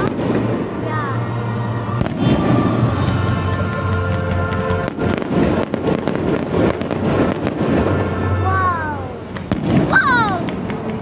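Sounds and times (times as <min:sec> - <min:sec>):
music playing: 0:00.0 - 0:06.4
fireworks bangs and crackles: 0:00.0 - 0:11.0.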